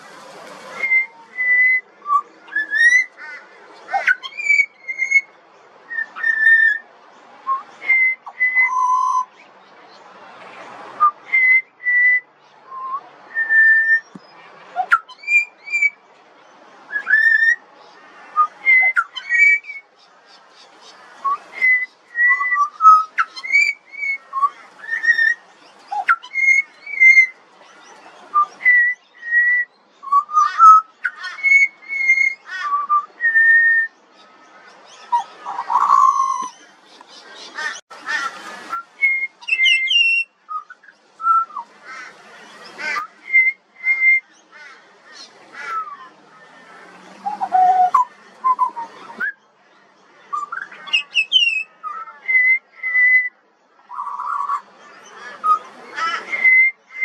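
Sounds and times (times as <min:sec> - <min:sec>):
bird singing whistled notes: 0:00.8 - 0:03.1, 0:04.0 - 0:05.3, 0:05.9 - 0:06.8, 0:07.4 - 0:09.4, 0:11.0 - 0:16.0, 0:16.9 - 0:17.6, 0:18.4 - 0:19.9, 0:21.2 - 0:27.4, 0:28.3 - 0:34.0, 0:34.9 - 0:36.6, 0:38.7 - 0:41.7, 0:43.0 - 0:44.4, 0:47.2 - 0:49.4, 0:50.3 - 0:54.6, 0:56.3 - 0:57.0.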